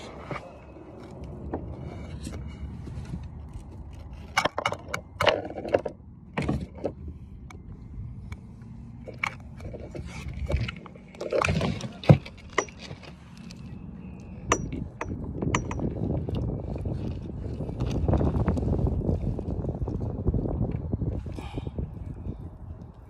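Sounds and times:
sharp clicks and knocks: 4.1 - 7.6, 14.4 - 16.0.

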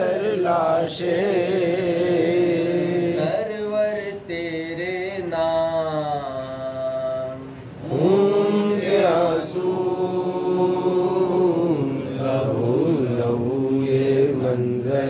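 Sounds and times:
man chanting a lament: 0.0 - 7.4.

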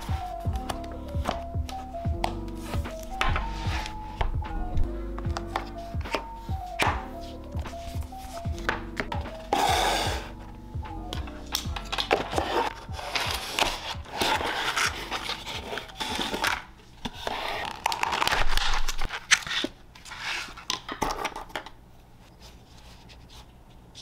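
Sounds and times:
plastic packaging crackling: 11.5 - 19.8.

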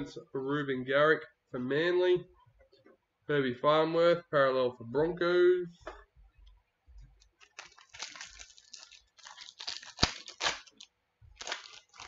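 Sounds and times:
cards crinkling and rustling: 7.2 - 12.0.

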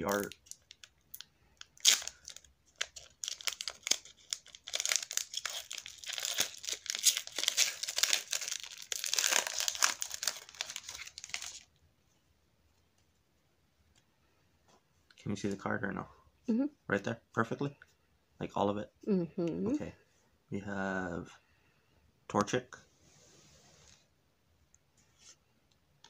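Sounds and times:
foil wrapper crinkling: 0.0 - 11.7.

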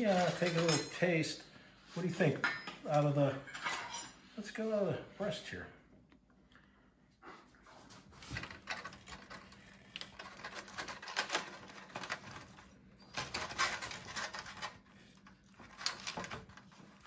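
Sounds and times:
foil crinkling: 8.2 - 17.0.

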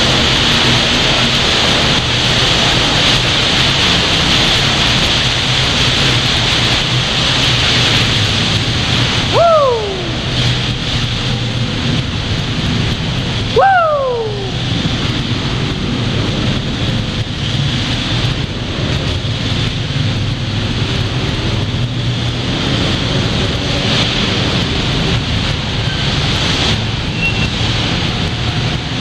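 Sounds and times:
wind noise: 0.0 - 29.0
atv engine droning: 3.8 - 29.0
high sweeping call: 9.3 - 10.4, 13.6 - 14.8.

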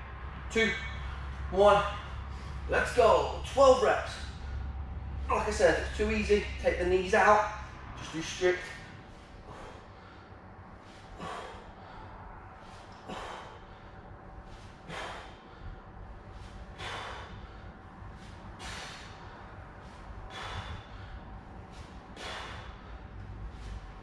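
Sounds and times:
man exhaling forcefully: 9.3 - 23.8.

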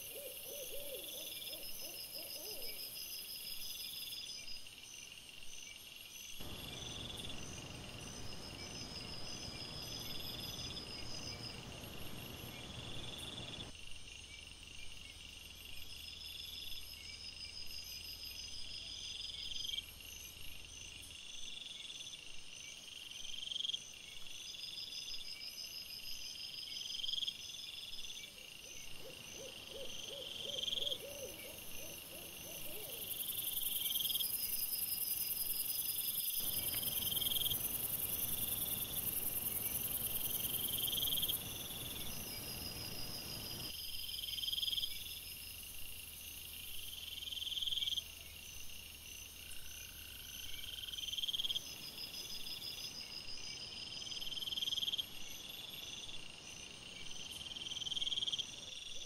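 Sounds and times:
insects chirping: 0.0 - 59.0
steady hiss: 36.3 - 43.8.

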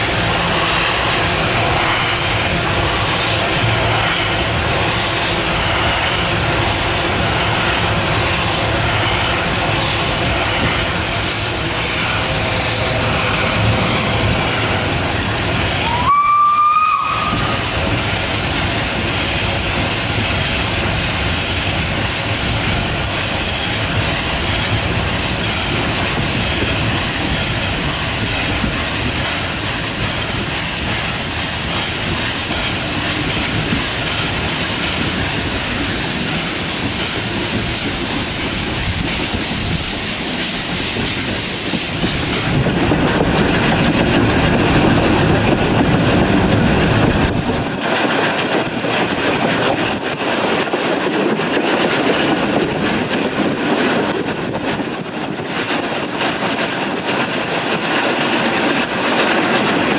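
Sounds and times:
steam train hiss and rumble: 0.0 - 59.9
steam whistle blast: 15.7 - 18.0.

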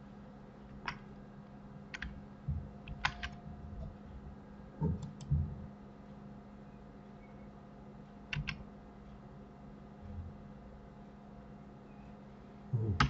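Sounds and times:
soft low thumps: 2.4 - 2.8, 3.5 - 5.7
mouse and keyboard clicks: 8.3 - 8.6.

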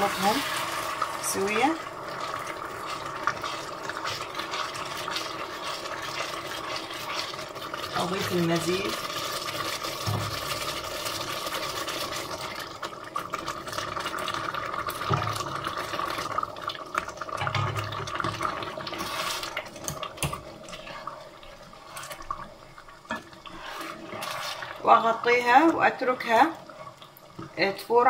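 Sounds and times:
broth pouring and splashing: 0.0 - 27.6.

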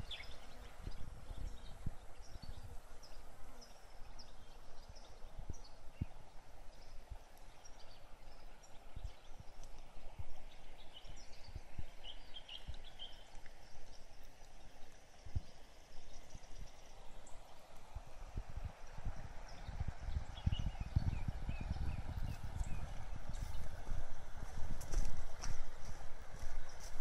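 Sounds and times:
small birds chirping: 0.0 - 17.4, 19.4 - 23.9
low thumps of walking: 22.2 - 27.0.

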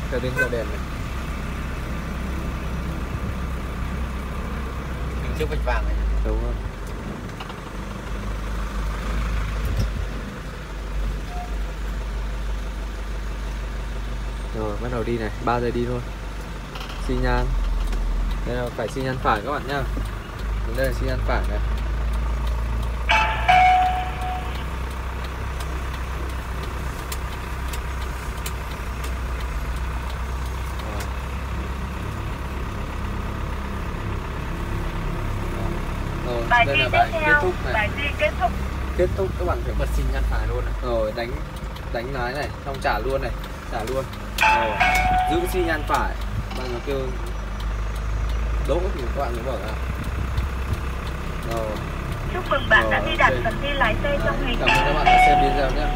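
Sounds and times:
truck engine idling: 0.0 - 55.9
short electronic beep: 23.1 - 24.8.

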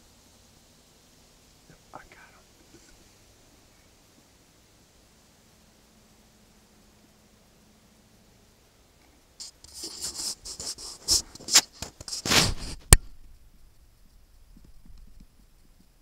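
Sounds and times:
crackling and scratching: 9.0 - 16.0.

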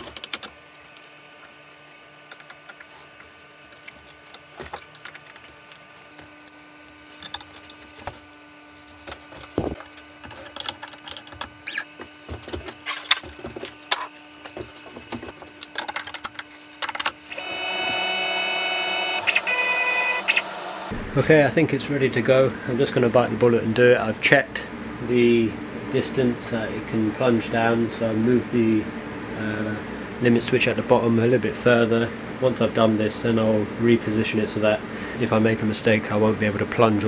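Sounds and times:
faint hum: 0.0 - 37.0
machine motor running: 7.9 - 21.6.

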